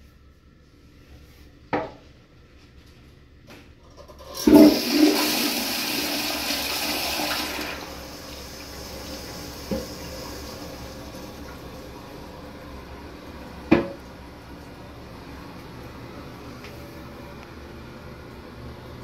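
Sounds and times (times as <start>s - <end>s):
toilet flushing: 3.9s - 16.2s.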